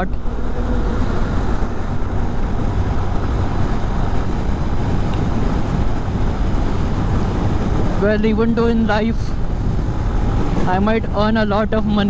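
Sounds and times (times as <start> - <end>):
motorcycle engine and road noise: 0.0 - 12.0
wind on microphone: 0.0 - 12.0.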